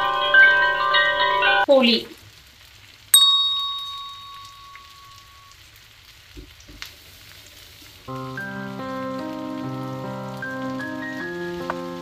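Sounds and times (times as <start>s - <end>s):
metallic ding: 3.2s - 5.4s.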